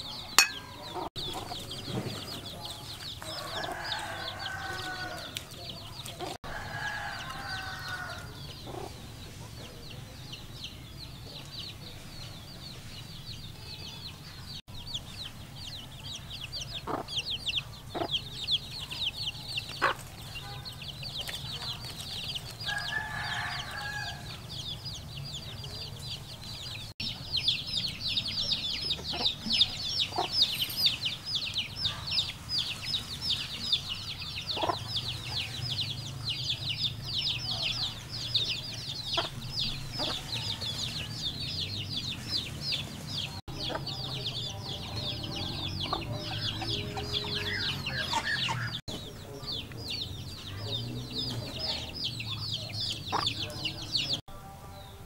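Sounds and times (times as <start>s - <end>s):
hen clucking: 0.0s - 9.8s, 16.7s - 22.0s, 28.6s - 30.6s, 31.8s - 36.0s, 39.0s - 41.0s, 43.5s - 54.2s
chicks peeping: 0.0s - 55.0s.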